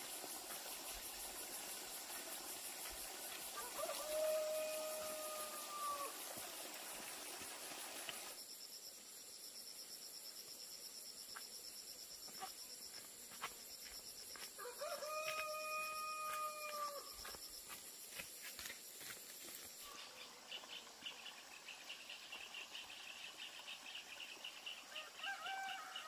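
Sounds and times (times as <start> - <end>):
rooster crowing: 3.6 - 6.2, 14.6 - 17.2, 24.9 - 26.0.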